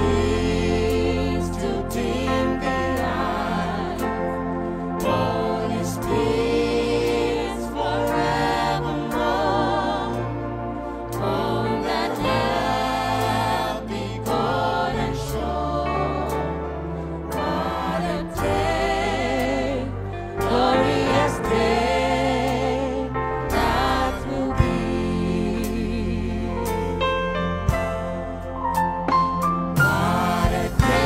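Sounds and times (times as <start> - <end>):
gospel singing: 0.0 - 28.6, 29.6 - 31.0
band with steady bass line: 0.0 - 31.0.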